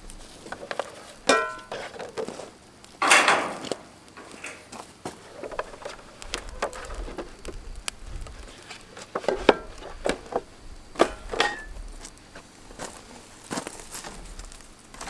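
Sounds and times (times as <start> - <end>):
tools and wood knocking: 0.5 - 2.3.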